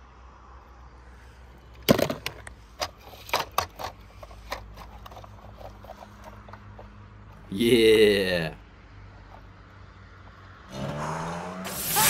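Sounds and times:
hard objects knocking and clattering: 0:01.8 - 0:06.9.

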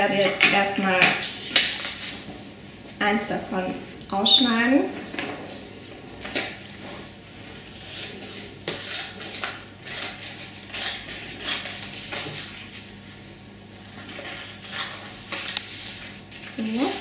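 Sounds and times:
paper rustling: 0:13.9 - 0:17.0.

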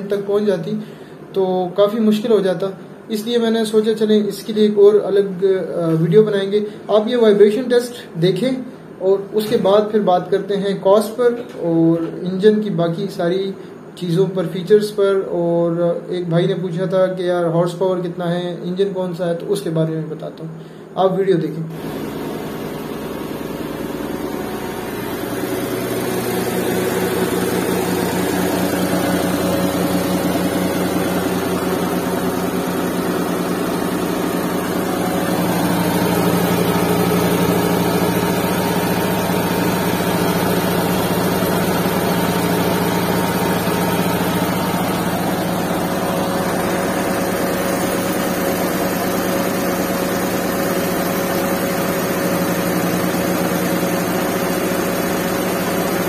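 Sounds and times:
car engine idling: 0:21.8 - 0:56.0.

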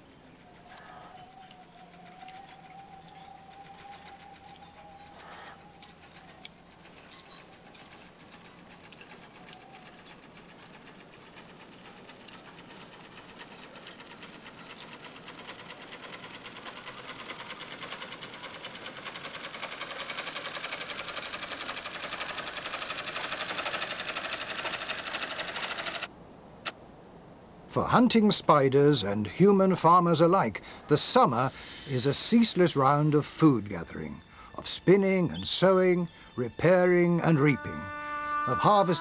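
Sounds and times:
rapid mechanical ticking: 0:00.0 - 0:26.1.

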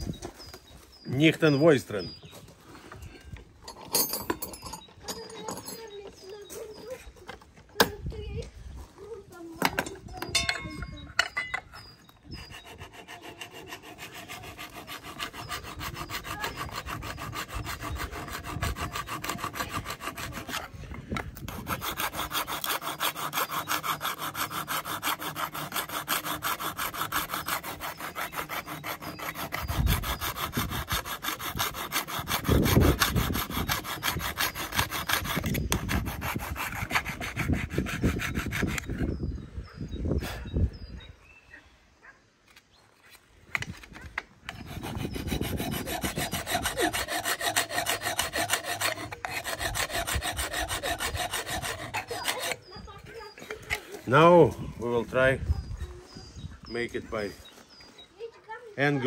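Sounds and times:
saw cutting wood: 0:11.8 - 0:39.2, 0:44.5 - 0:54.4.

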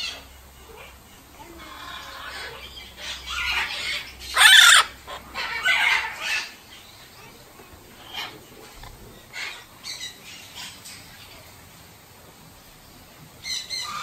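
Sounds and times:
macaws squawking: 0:01.4 - 0:06.6.

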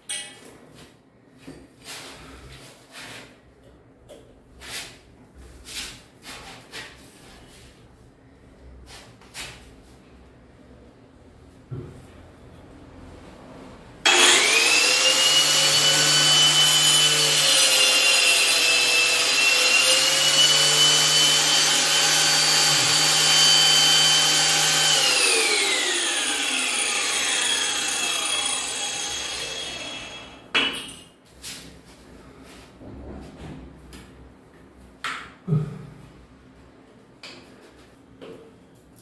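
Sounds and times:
angle grinder whine: 0:14.0 - 0:30.4.

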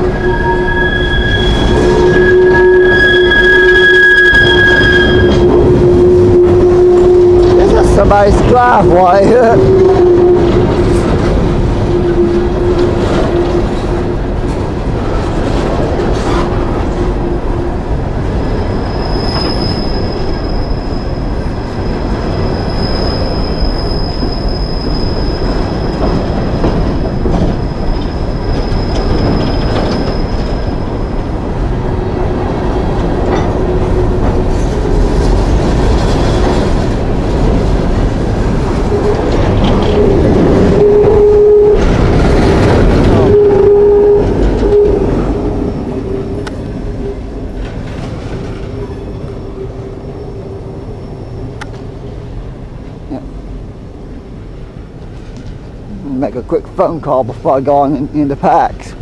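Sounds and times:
high steady squeal: 0:00.0 - 0:11.0, 0:18.5 - 0:31.3
train wheels rumbling on rail: 0:00.0 - 0:59.0.

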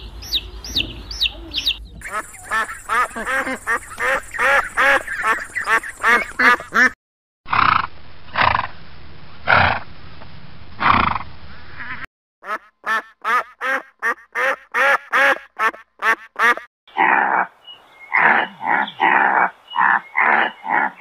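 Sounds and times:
ducks quacking: 0:00.0 - 0:07.0, 0:11.8 - 0:17.5, 0:18.1 - 0:21.0.

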